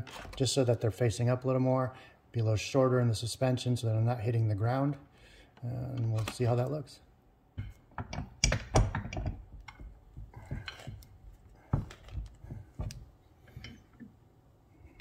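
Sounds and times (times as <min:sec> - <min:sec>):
metal pipe hanger clicking and knocking: 0:07.6 - 0:11.1, 0:11.8 - 0:14.1.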